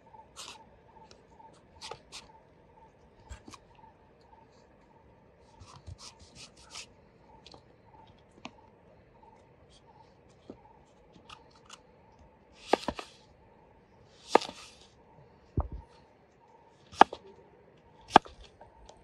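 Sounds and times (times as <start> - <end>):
knife cutting on wooden board: 12.6 - 13.1, 14.3 - 14.8, 17.0 - 17.2.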